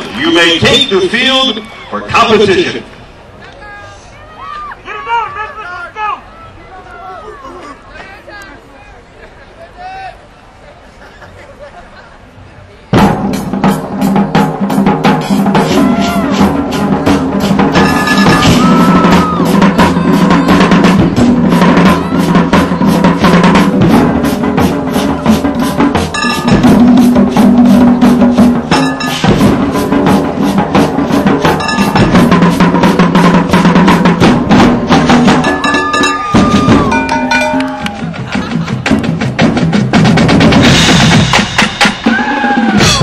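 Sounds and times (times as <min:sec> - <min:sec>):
marching percussion hits: 0:13.0 - 0:43.0.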